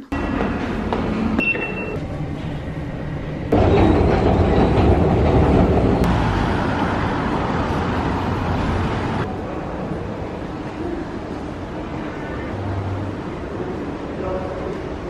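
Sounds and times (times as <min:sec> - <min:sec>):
train rumble and clatter: 0:00.1 - 0:12.0.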